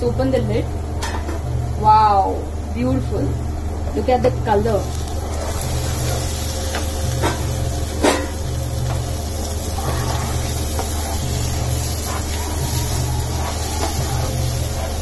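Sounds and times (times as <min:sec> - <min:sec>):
masala sizzling in oil: 0:03.0 - 0:15.0.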